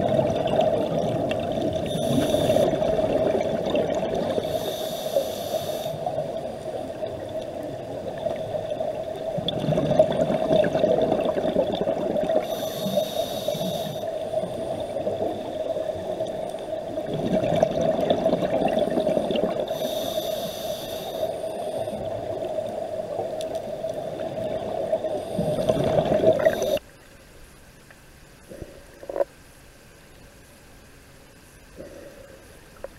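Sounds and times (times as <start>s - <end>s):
gurgling exhaled bubbles: 0.0s - 4.7s, 6.0s - 13.8s, 14.4s - 19.8s, 21.8s - 26.8s
regulator inhale hiss: 1.8s - 2.8s, 4.3s - 6.3s, 12.4s - 15.5s, 19.0s - 22.4s, 25.1s - 26.9s, 31.8s - 32.8s.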